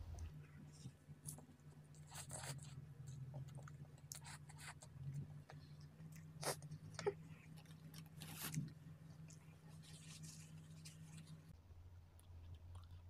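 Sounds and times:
faint low hum: 0:00.0 - 0:13.0
wet chewing clicks and smacks: 0:12.1 - 0:13.0.

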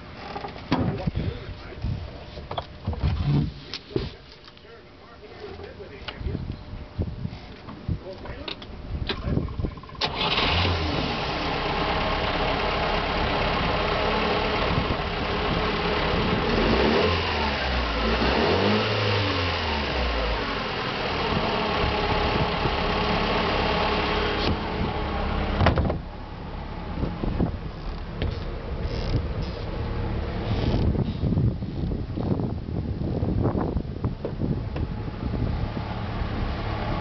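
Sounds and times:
boat engine running: 0:21.3 - 0:31.0.

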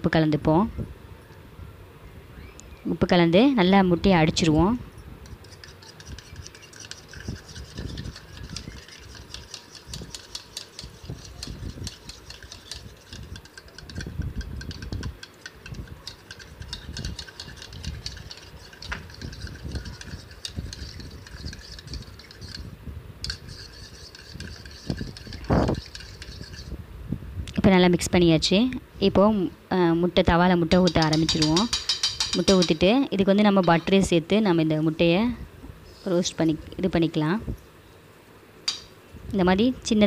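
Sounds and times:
egg swishing: 0:05.2 - 0:26.8
spoon clicking against bowl: 0:05.3 - 0:22.6, 0:30.7 - 0:32.8.

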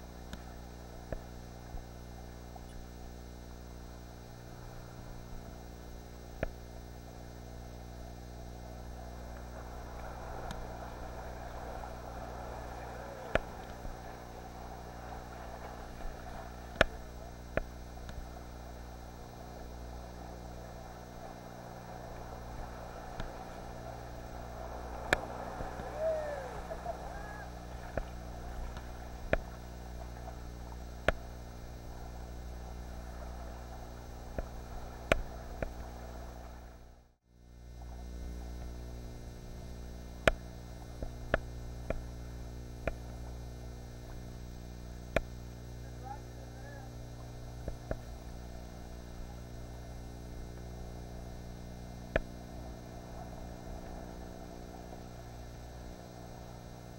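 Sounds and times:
electrical hum: 0:00.0 - 0:56.9
ocean swell washing against rocks: 0:08.6 - 0:36.8.

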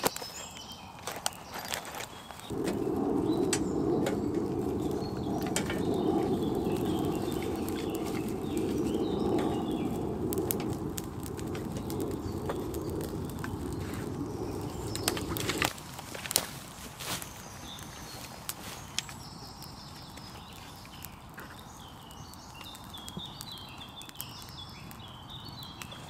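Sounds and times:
fire crackling and snapping: 0:00.0 - 0:26.0
wind buffeting microphone: 0:02.4 - 0:18.2.

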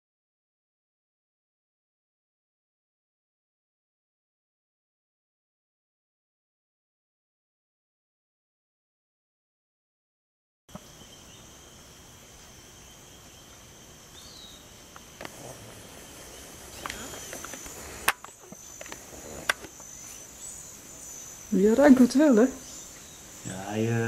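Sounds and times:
insects trilling: 0:10.7 - 0:24.0.

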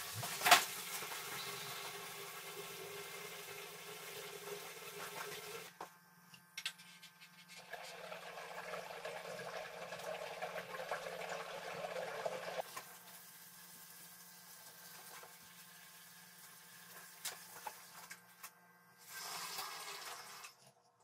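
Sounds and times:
pump humming: 0:00.0 - 0:06.1.

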